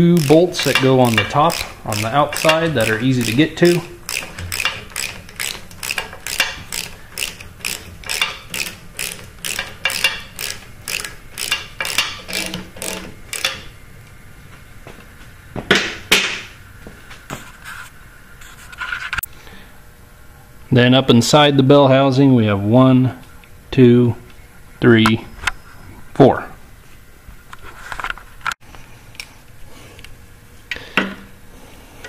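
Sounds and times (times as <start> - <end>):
socket ratchet clicking: 0.0 - 13.7.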